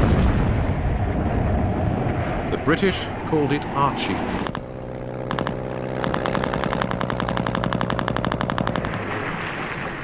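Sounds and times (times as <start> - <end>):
rapid machine-gun fire: 5.3 - 9.1.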